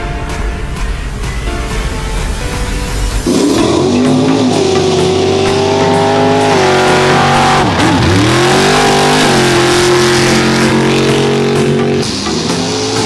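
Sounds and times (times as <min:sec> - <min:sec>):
pickup truck engine revving: 0:03.2 - 0:13.0.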